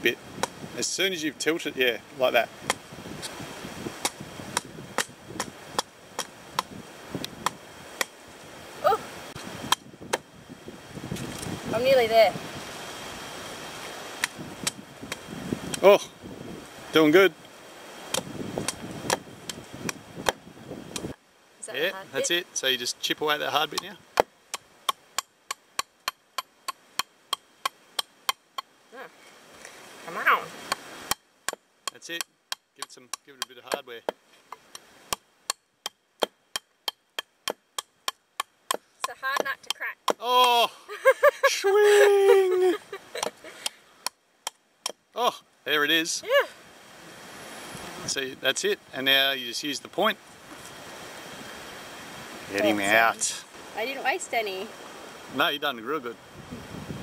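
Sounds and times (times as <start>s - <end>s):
blade chopping coconut husk: 2.6s - 3.4s, 4.0s - 6.8s, 7.4s - 8.2s, 18.1s - 21.1s, 30.6s - 40.2s.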